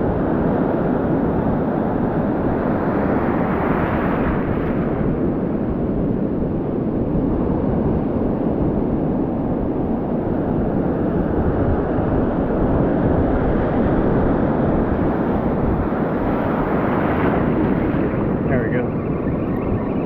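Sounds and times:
wind buffeting microphone: 0.0 - 20.0
ocean surf breaking: 1.2 - 5.7, 10.9 - 20.0.

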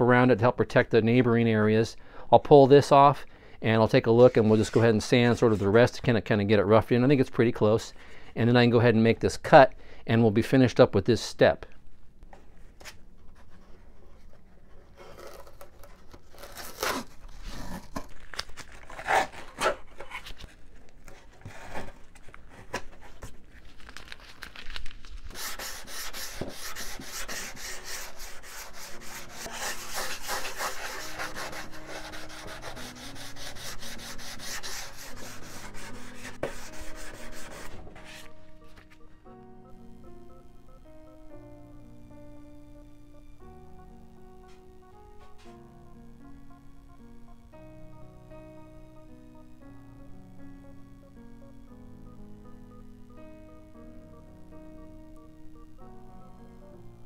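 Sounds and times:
background music with held notes: 0.0 - 11.5, 25.4 - 57.0
sandpaper rubbing on wood: 25.3 - 38.3.

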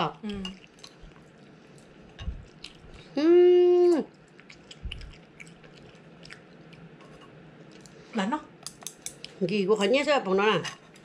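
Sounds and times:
person chewing: 0.2 - 3.2, 3.9 - 8.0.

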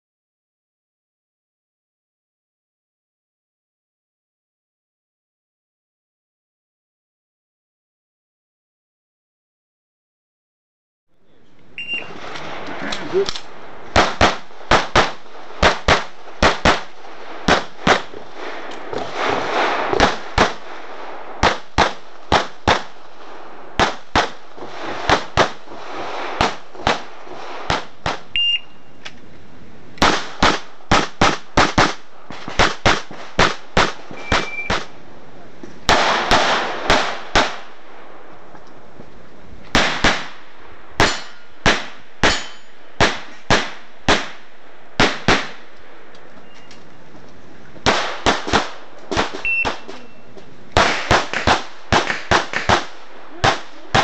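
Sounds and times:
pistol shots: 11.8 - 25.7, 26.3 - 28.6, 30.0 - 35.0, 35.9 - 38.1, 39.7 - 45.7, 47.8 - 50.1, 50.7 - 54.0.

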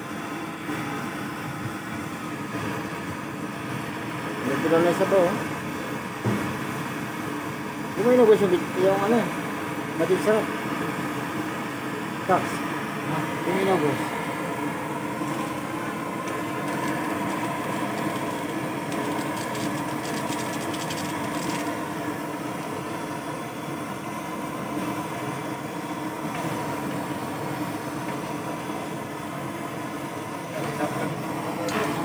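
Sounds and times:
engine idling: 13.0 - 23.3.

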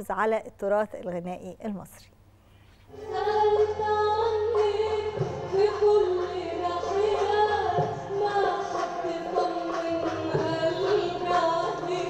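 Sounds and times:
woman singing: 2.9 - 12.0.

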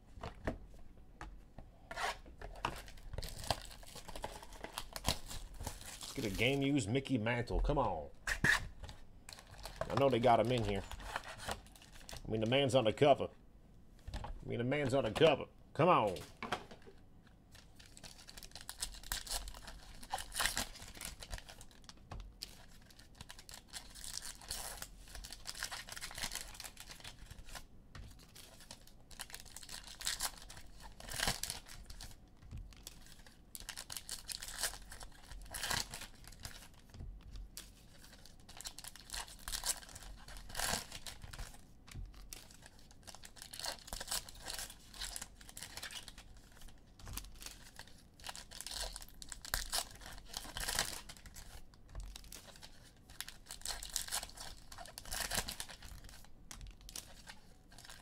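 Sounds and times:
foil wrappers tearing and crinkling: 2.8 - 6.6, 17.6 - 36.9, 37.6 - 58.0.

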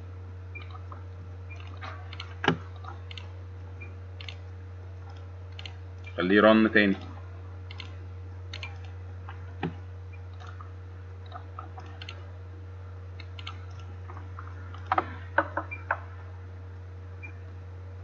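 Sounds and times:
low hum: 0.0 - 18.0
mouse and keyboard clicks: 4.2 - 4.4, 7.7 - 8.9, 11.3 - 12.2, 13.2 - 13.9.

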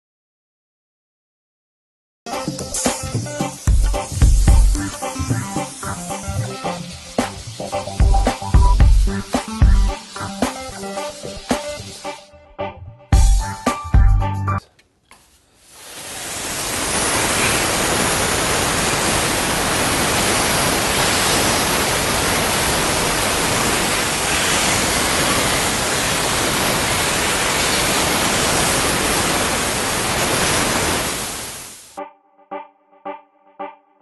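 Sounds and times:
steam jet hissing: 2.4 - 12.3, 15.6 - 32.0.

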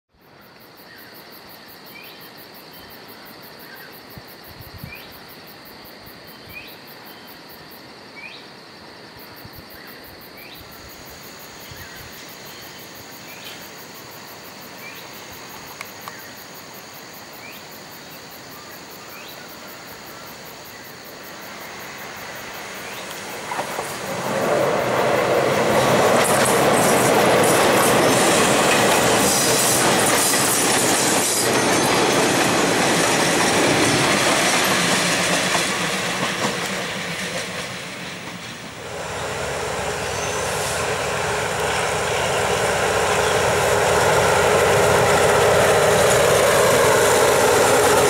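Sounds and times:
insects buzzing: 0.2 - 48.0
distant diesel railcar: 18.5 - 48.0.

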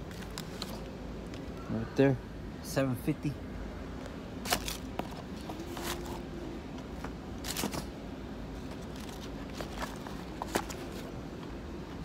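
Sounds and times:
low background hum: 0.0 - 12.0
boxes being handled: 4.4 - 8.0, 8.6 - 12.0.

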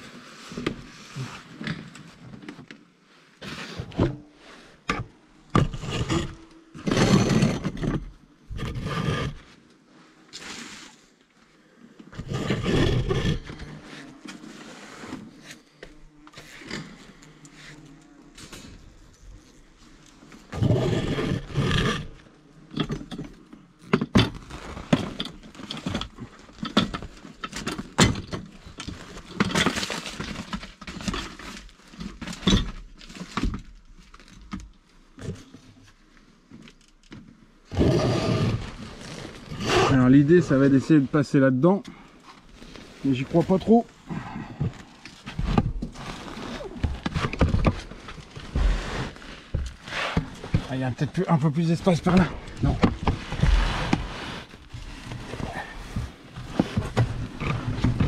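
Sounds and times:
protective suit rustling: 42.2 - 58.0.

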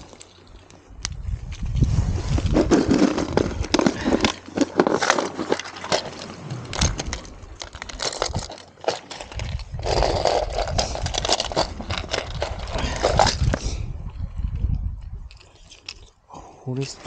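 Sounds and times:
sharp clicks and crackles: 0.0 - 13.6.

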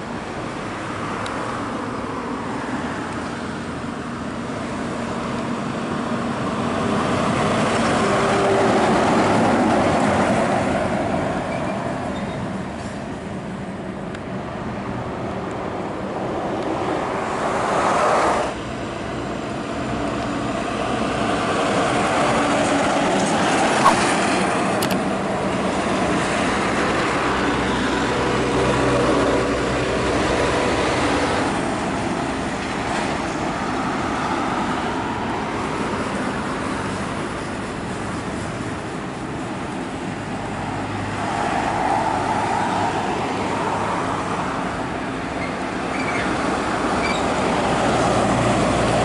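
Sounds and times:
diesel truck engines: 0.0 - 49.0
tyre and road noise: 0.0 - 49.0.

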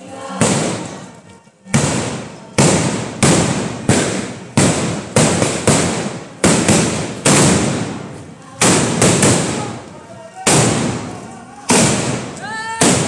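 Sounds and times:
firecracker blasts: 0.4 - 1.1, 1.7 - 13.0.

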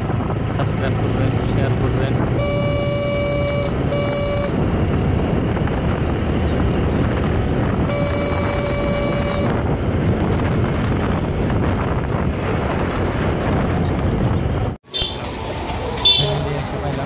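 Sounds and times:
wind rushing over microphone: 0.0 - 14.8
motorcycle engine: 0.0 - 16.8
vehicle horn: 2.4 - 4.6, 7.8 - 9.6.

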